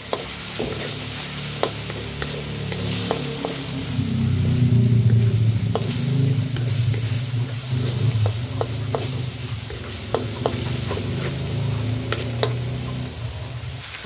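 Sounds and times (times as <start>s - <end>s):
wooden spatula scraping a pan: 0.0s - 13.5s
steady low hum: 0.0s - 13.8s
meat sizzling in a hot pan: 0.0s - 14.0s.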